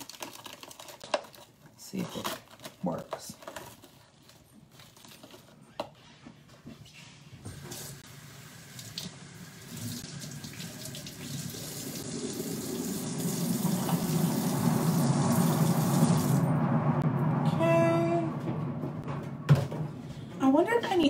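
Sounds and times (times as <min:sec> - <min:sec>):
faucet running into a metal sink: 0:08.3 - 0:16.4.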